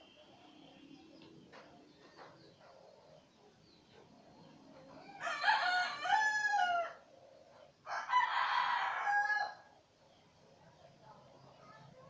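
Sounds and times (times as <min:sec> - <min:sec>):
rooster crowing: 0:05.0 - 0:07.0, 0:07.9 - 0:09.7.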